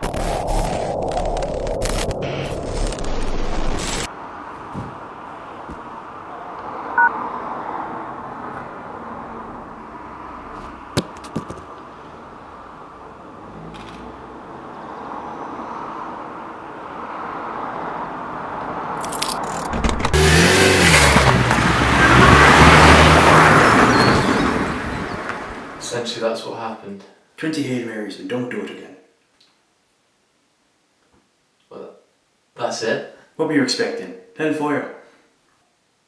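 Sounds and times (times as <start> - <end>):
car driving up street: 4.1 - 25.8.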